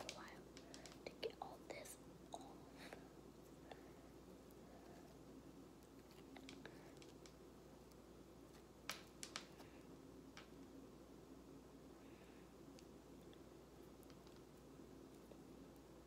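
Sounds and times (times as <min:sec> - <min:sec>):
acrylic nails clicking: 0:00.0 - 0:01.2, 0:05.8 - 0:09.6
soft sticky peeling: 0:00.0 - 0:10.8, 0:12.2 - 0:16.0.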